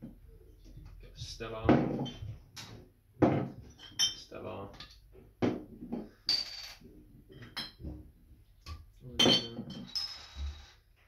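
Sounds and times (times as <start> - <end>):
bottles knocking on wooden floor: 1.6 - 4.2, 5.4 - 8.1
glass bottles clinking: 1.7 - 5.0, 6.0 - 7.9, 9.2 - 10.6.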